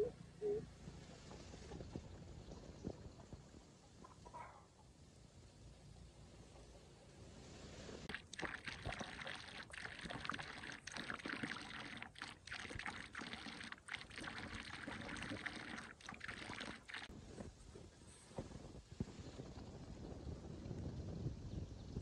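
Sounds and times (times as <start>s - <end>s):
water splashing and sloshing: 8.0s - 17.5s.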